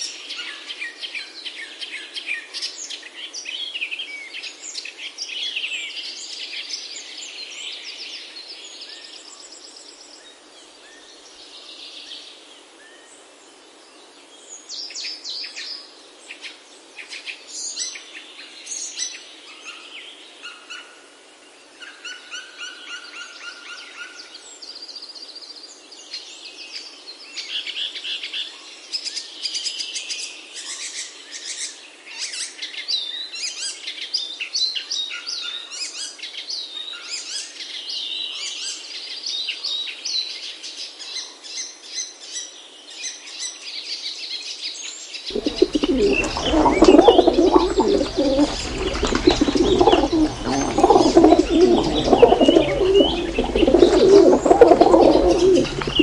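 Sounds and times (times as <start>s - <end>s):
pigeons cooing: 45.3s - 56.0s
songbirds chirping: 45.3s - 56.0s.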